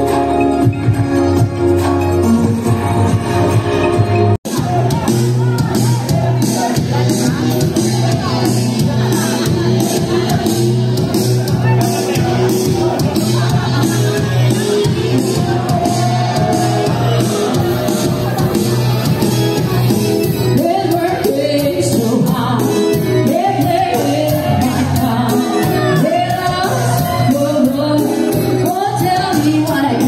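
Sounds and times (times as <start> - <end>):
electronic keyboard: 0.0 - 30.0
steady beat: 0.0 - 30.0
person singing: 20.5 - 30.0.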